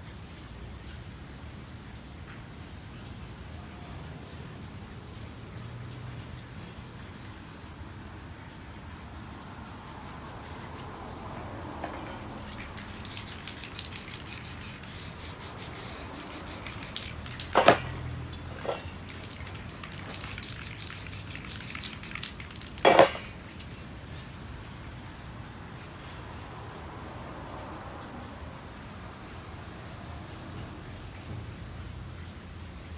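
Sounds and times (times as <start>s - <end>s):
spray paint bursts: 11.8s - 23.4s
spray can rattling and clicking: 11.8s - 23.7s.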